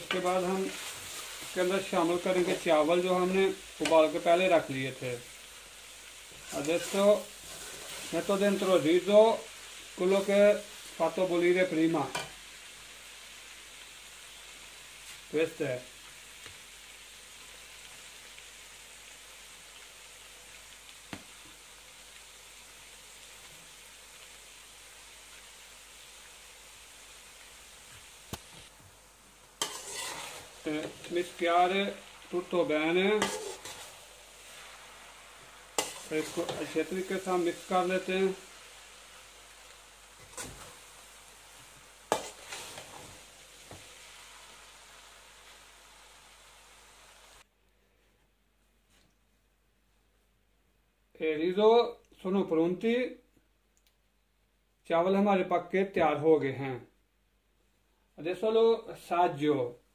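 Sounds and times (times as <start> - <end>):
food sizzling in a pan: 0.0 - 47.5
faint steady hiss: 0.0 - 59.9.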